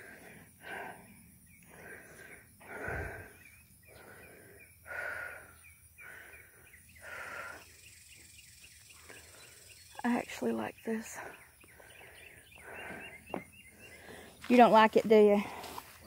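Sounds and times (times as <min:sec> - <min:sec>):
person breathing heavily: 0:00.0 - 0:07.9, 0:11.1 - 0:14.5, 0:15.4 - 0:16.0.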